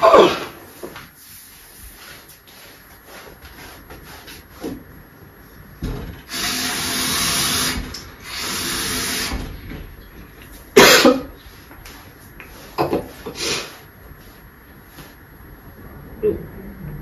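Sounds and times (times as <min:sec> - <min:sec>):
woman coughing harshly: 0:00.0 - 0:00.6, 0:10.8 - 0:11.4.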